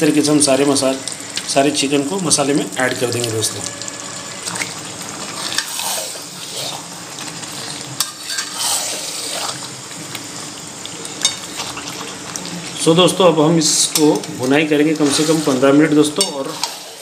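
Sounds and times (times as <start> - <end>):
chicken sizzling in a pan: 0.0 - 17.0
spatula scraping a metal pan: 7.7 - 9.6, 15.0 - 17.0.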